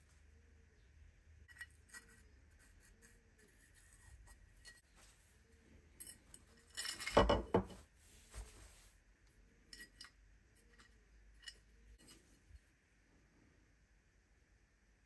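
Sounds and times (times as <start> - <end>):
metal parts clinking: 5.9 - 7.4
towel rustling: 7.7 - 9.0.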